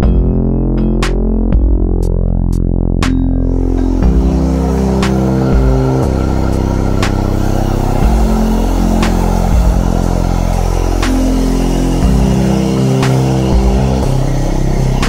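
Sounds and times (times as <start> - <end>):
electronic music: 0.0 - 15.0.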